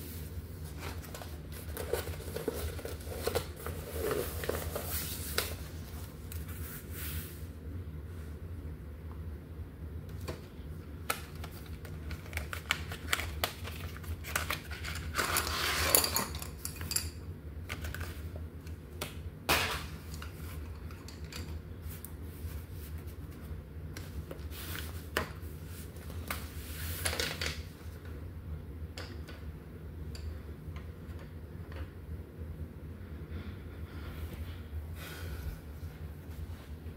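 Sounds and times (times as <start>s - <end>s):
low steady hum: 0.0s - 36.9s
pencils clattering on a table: 11.3s - 18.2s, 19.5s - 21.6s, 26.9s - 27.7s.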